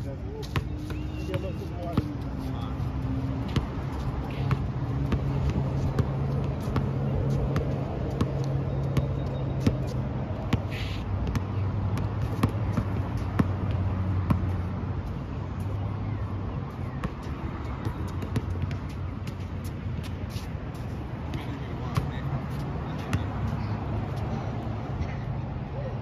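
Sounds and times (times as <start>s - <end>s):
basketball bouncing on hard court: 4.3s - 14.6s.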